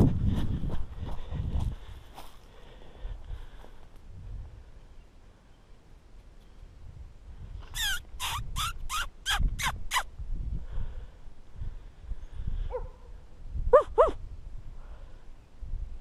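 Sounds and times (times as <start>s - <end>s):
coyote yipping: 7.7s - 10.1s, 13.7s - 14.2s.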